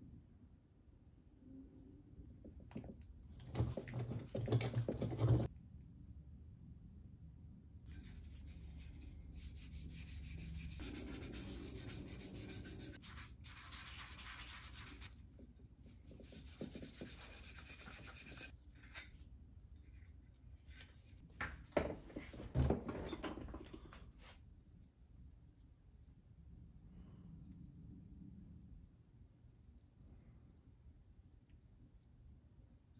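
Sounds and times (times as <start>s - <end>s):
pad rubbing wooden spoon: 7.9s - 15.1s.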